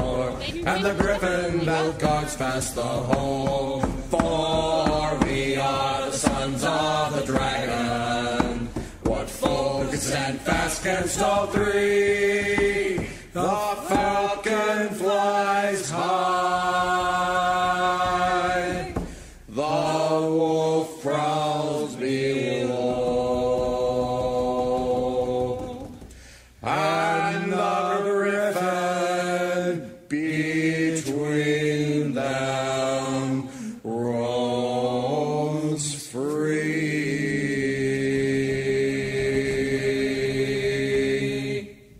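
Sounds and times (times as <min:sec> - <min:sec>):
person singing long notes: 0:00.0 - 0:14.7.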